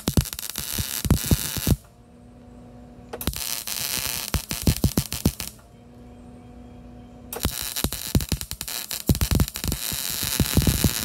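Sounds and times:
welder arc crackling: 0.0s - 1.9s, 3.2s - 5.6s, 7.4s - 11.0s
steady hum: 0.0s - 11.0s.

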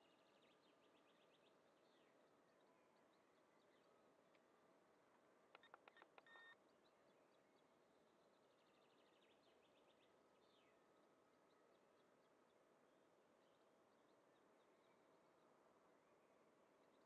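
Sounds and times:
faint clicks: 5.5s - 6.4s
brief beep: 5.6s - 6.6s.

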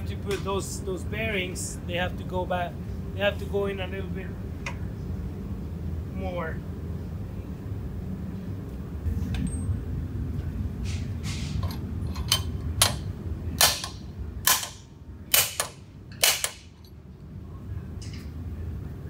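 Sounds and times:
hammer striking metal: 13.6s - 16.8s.

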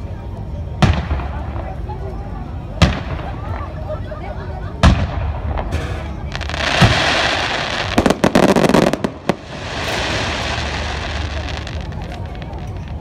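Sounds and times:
firework cracks: 4.8s - 13.0s
firework rushing hiss: 5.3s - 13.0s.

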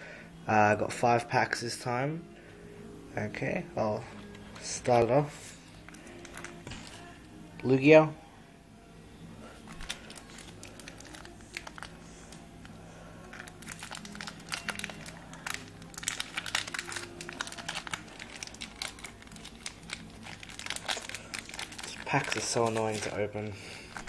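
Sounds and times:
foil wrapper crinkling: 5.8s - 7.1s, 9.6s - 24.0s
person talking: 21.9s - 23.7s.

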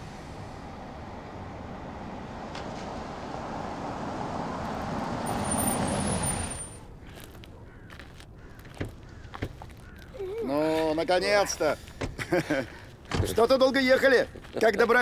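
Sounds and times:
car engine and tyres on snow: 0.0s - 10.0s.

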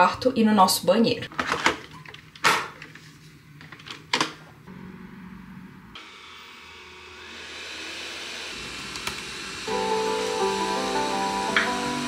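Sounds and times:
steady hiss: 9.7s - 12.0s.

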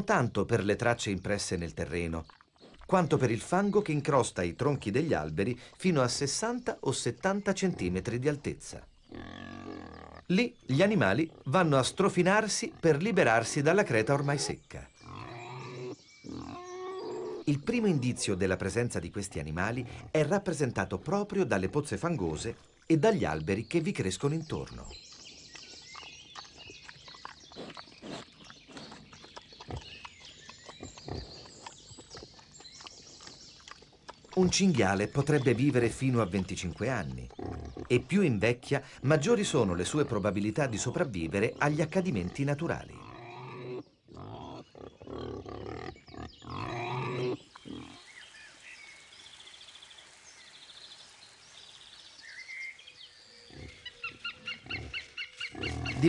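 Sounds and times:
wild boar grunting: 7.4s - 22.5s, 24.6s - 48.1s, 53.4s - 56.0s.

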